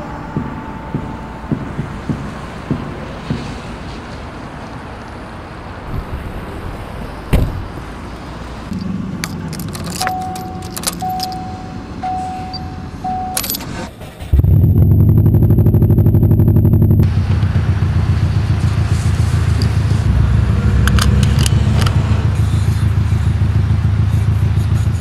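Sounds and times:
warning tone beeping: 0.0 - 3.7, 10.0 - 13.6
footsteps: 0.0 - 5.2
low hum: 0.0 - 5.8, 8.7 - 24.8
car door slamming: 7.3 - 7.8
keys jangling: 8.8 - 11.6, 12.4 - 13.8.

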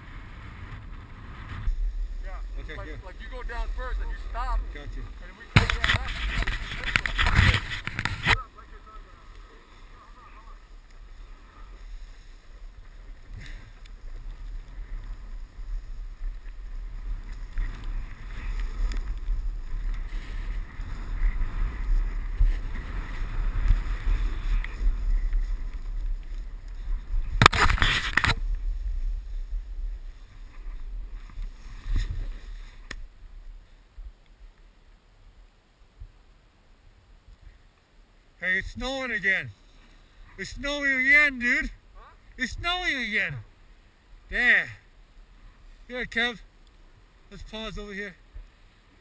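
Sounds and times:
skis scraping packed snow: 0.0 - 33.9, 38.4 - 49.0
wind rumbling on microphone: 0.0 - 37.7.

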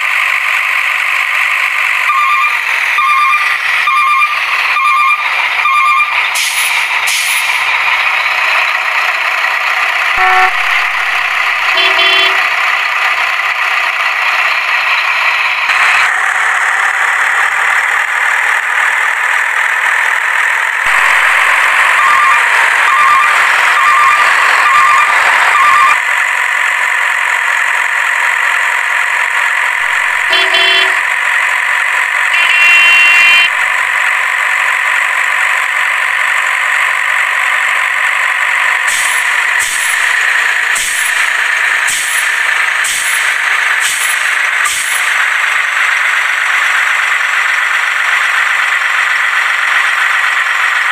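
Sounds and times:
heavy truck engine running: 0.0 - 50.9
horn beeps: 2.1 - 6.4, 10.2 - 12.5, 21.9 - 26.0, 30.3 - 31.0, 32.3 - 33.5.

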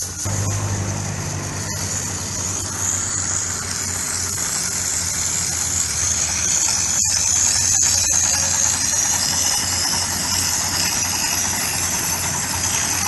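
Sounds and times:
steam hissing: 0.0 - 13.0
low hum: 0.2 - 10.0.

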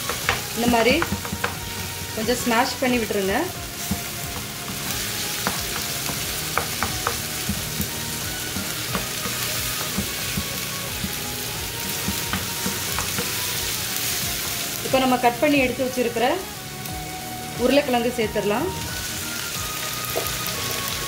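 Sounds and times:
spatula scraping and tapping pan: 0.0 - 3.2, 3.8 - 13.6
onion and tomato sizzling in oil: 0.0 - 21.0.

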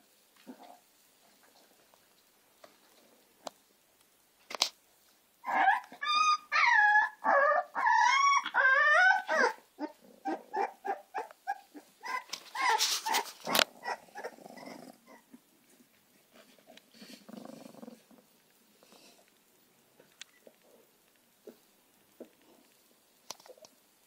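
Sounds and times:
puppies squealing and whimpering: 5.4 - 15.4.

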